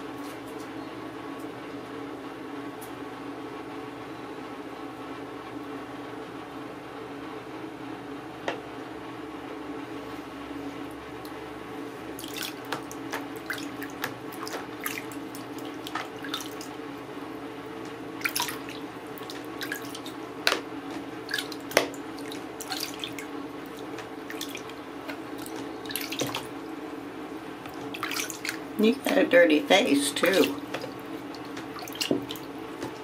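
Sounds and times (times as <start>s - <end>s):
steady low hum: 0.0s - 33.0s
water splashing and dripping: 12.2s - 16.8s, 18.2s - 26.7s, 27.6s - 28.9s, 30.0s - 33.0s.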